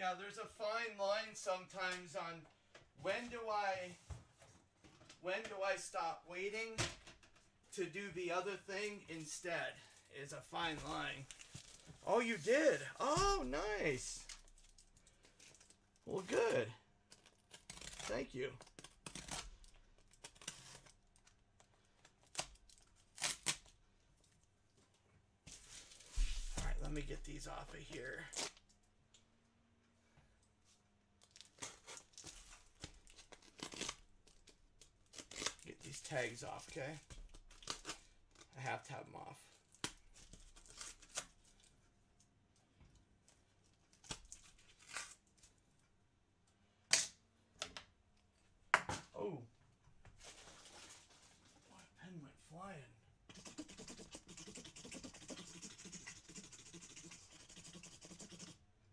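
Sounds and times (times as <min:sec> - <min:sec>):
rustling of small objects: 0:50.2 - 0:51.7.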